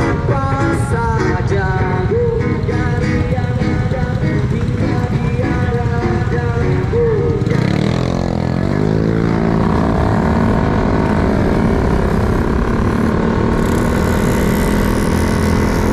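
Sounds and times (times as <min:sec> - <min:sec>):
motor scooter engine revving: 0:00.0 - 0:15.9.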